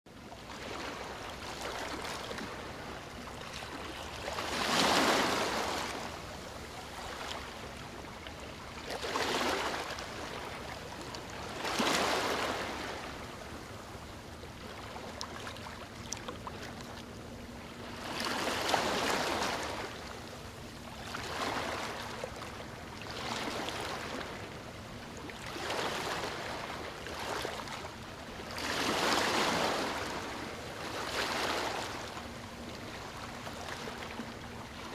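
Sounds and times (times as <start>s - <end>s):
sea waves washing: 3.6s - 7.8s.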